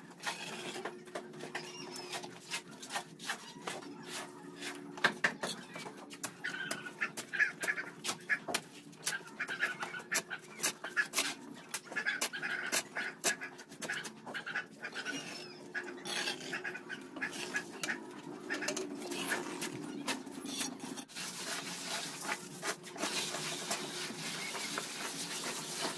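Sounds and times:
trowel scraping and tapping mortar: 1.9 - 14.3.

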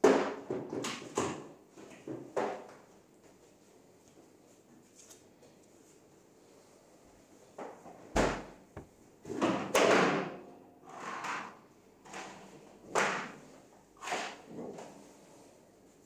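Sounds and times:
knocks and thumps: 8.2 - 9.0.

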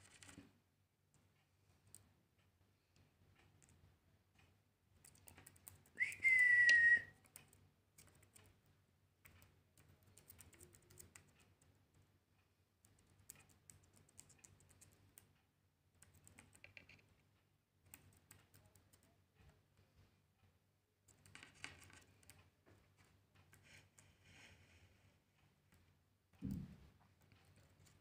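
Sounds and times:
cockatiel whistle: 6.0 - 7.2.

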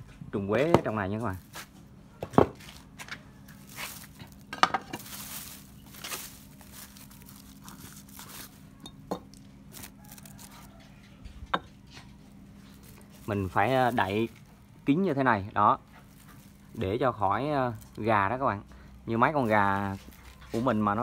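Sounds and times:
cover crinkling and rustling: 1.2 - 11.2, 12.0 - 14.6, 15.8 - 18.1, 19.3 - 21.0.

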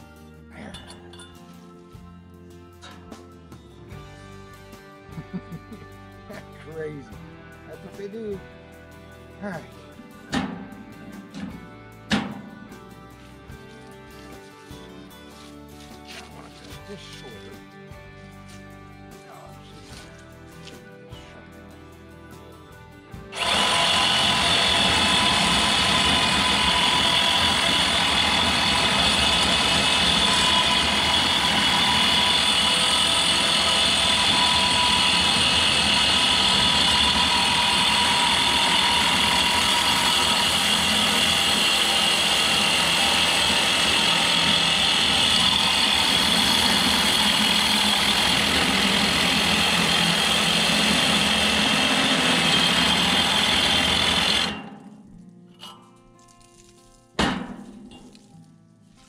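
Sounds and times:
power tool whining: 23.3 - 54.8.

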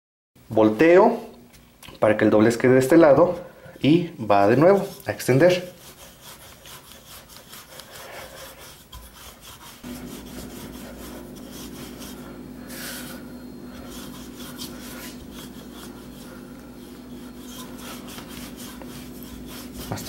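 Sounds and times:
steady low hum: 1.2 - 20.0
rolling pin scraping over dough: 4.3 - 20.0.

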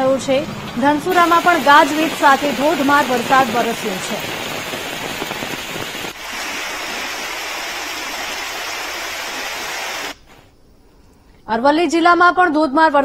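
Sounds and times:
heavy rain pouring: 1.0 - 10.3.

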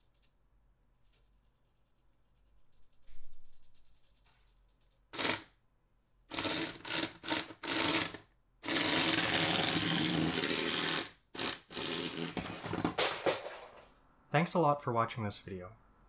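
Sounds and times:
toy tank motors driving tracks: 5.1 - 5.5, 6.3 - 12.4.

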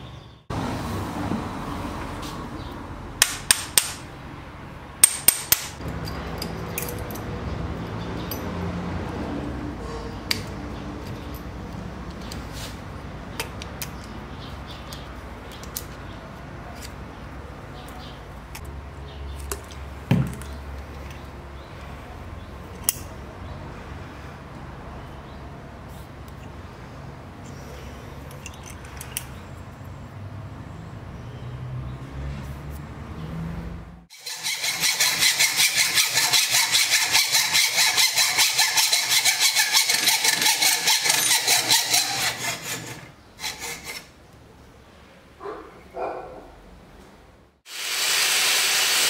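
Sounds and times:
sharp tool clicks: 3.2 - 4.0, 5.0 - 5.8.

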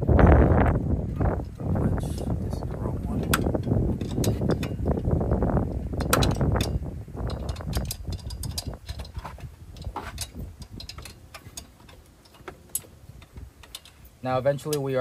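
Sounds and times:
wind rumble on microphone: 0.0 - 14.3
hands clicking and tapping car parts: 3.2 - 14.0.

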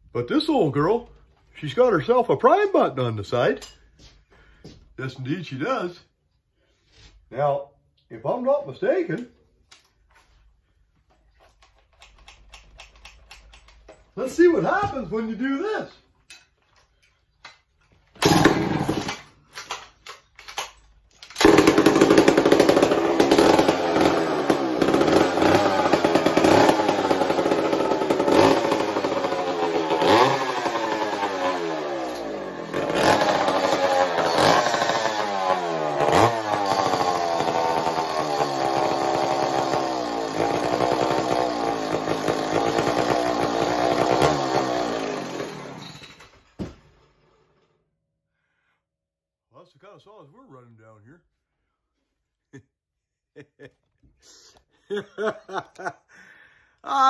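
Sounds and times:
man talking: 0.1 - 3.8, 5.0 - 6.1, 7.3 - 9.4, 14.2 - 16.0, 49.5 - 51.3
chainsaw pull-starting and revving: 18.1 - 20.2, 21.2 - 47.8.

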